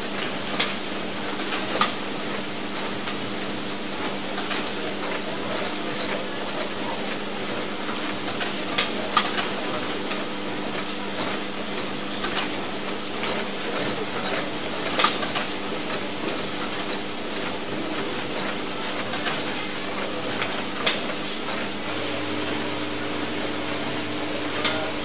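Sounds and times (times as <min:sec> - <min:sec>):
machinery humming: 0:15.5 - 0:25.0.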